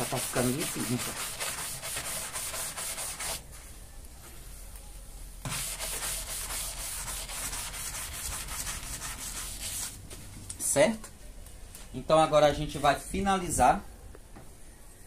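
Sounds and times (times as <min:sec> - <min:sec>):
brush scrubbing metal panel: 0:00.0 - 0:03.4, 0:05.5 - 0:10.0.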